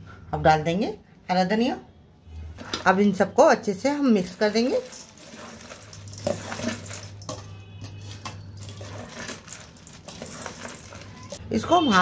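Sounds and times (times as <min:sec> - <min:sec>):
metal spoon scraping steel bowl: 0:04.1 - 0:11.4
puffed rice rustling in a bowl: 0:04.1 - 0:11.4.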